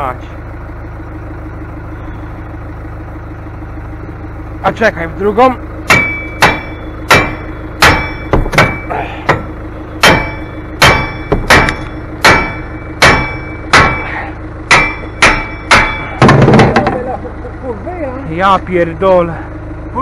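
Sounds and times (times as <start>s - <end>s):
hammer blows on metal: 5.9s - 16.2s.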